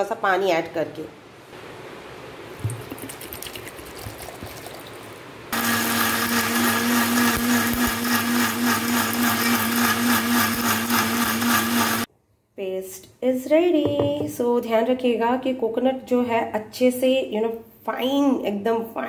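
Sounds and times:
mixer grinder running: 5.6 - 12.1.

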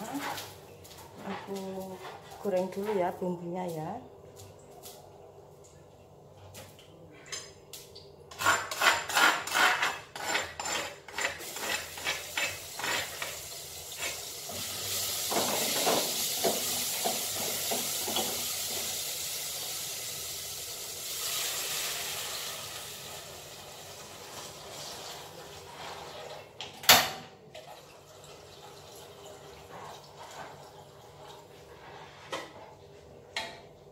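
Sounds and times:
spatula scraping cooking pot: 0.0 - 3.2, 8.3 - 14.6, 31.6 - 32.8
loud sizzle: 11.4 - 26.3.

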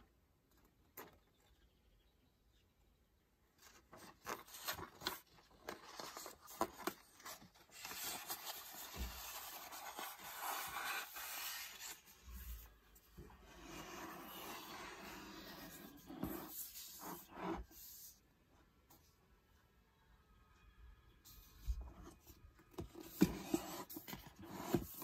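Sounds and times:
paper crackling and rustling: 3.6 - 12.2.

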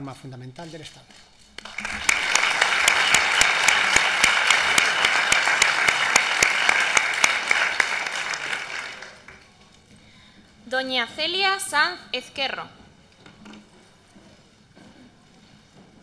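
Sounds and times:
audience applauding: 1.6 - 9.4.

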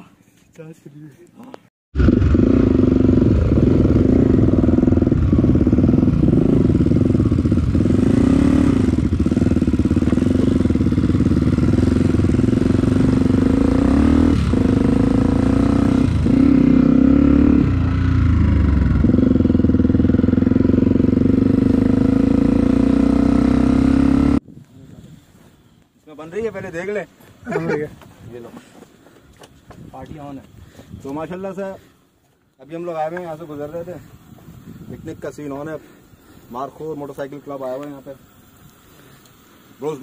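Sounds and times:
motorcycle engine running: 2.0 - 24.4.

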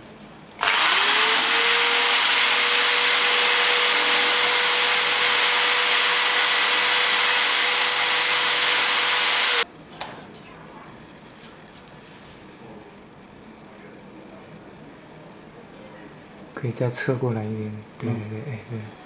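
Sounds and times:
electric drill grinding: 0.6 - 9.6.

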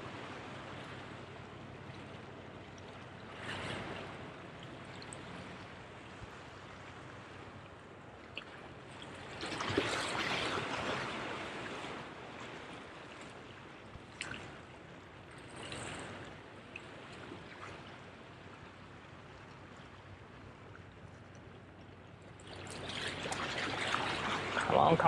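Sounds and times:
waves splashing against rocks: 22.4 - 25.0.

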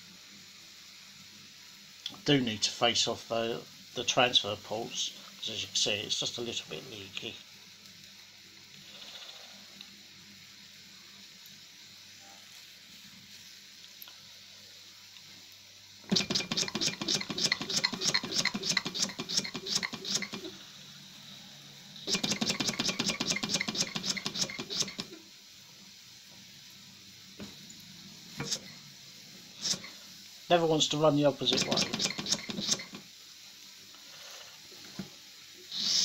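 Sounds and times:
model steam engine chuffing: 16.1 - 20.5, 22.1 - 25.1, 29.6 - 29.9, 31.5 - 33.0.

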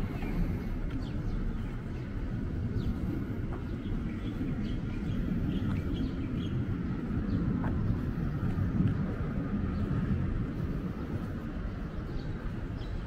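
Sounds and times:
low rumble of street noise: 0.0 - 13.0
small birds chirping: 0.0 - 13.0.

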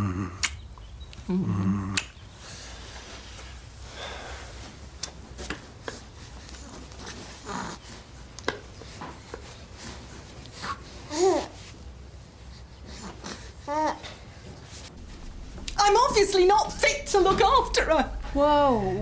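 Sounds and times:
soft breaths: 1.6 - 15.8.

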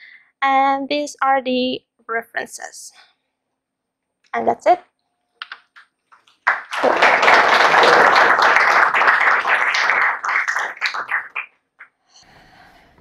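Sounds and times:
audience applauding: 6.2 - 11.5.

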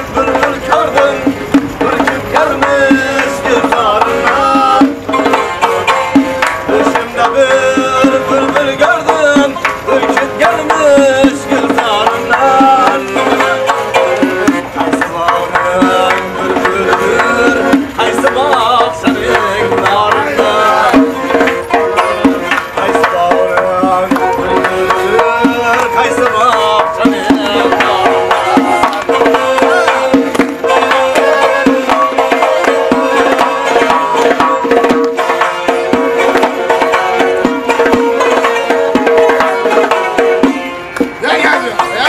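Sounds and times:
accordion: 0.0 - 42.0
frame drum beating: 0.0 - 42.0
plucked lute: 0.0 - 42.0.

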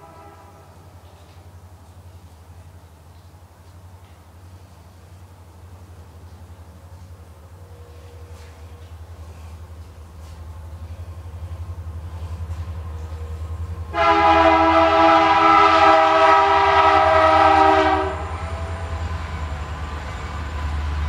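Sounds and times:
train air horn chord: 0.0 - 1.0, 13.9 - 18.8
locomotive rumble: 0.0 - 21.0.

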